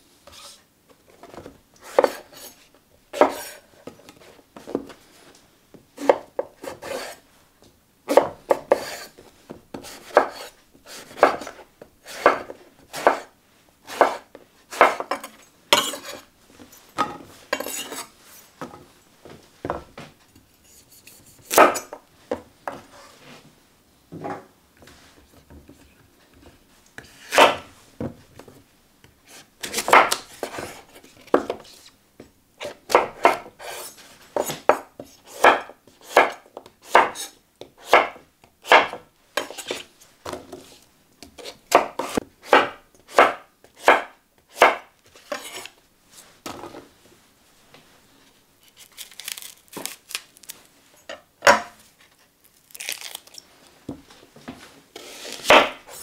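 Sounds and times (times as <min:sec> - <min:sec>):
knife chopping on wooden board: 0:08.1 - 0:09.1, 0:09.7 - 0:13.3, 0:13.9 - 0:16.2, 0:27.3 - 0:27.7, 0:29.6 - 0:30.7, 0:32.6 - 0:40.4, 0:41.4 - 0:45.7, 0:55.0 - 0:56.0.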